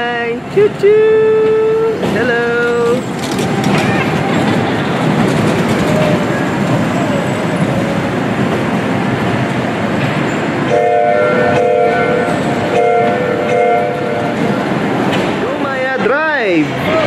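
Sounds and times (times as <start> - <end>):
ride train rolling on track: 0.0 - 17.0
train whistle toots: 10.7 - 14.4.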